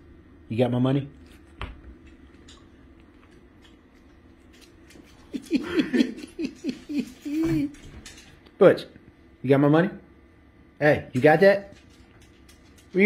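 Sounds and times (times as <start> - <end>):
dog claws clicking on hard floor: 1.2 - 5.6, 6.2 - 8.4, 11.2 - 13.0.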